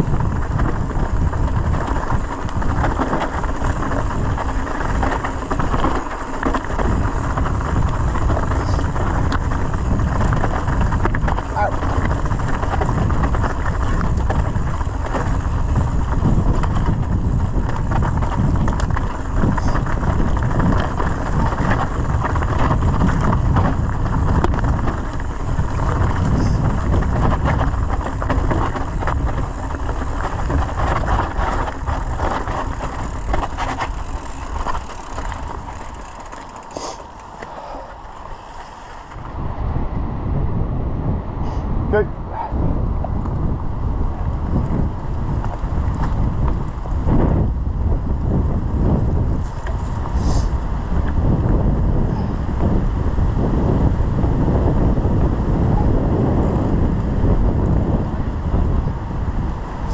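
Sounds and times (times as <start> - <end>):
tyres rumbling over stones: 0.0 - 39.4
bike rattling: 0.0 - 40.6, 42.2 - 59.9
wind buffeting microphone: 0.0 - 59.9.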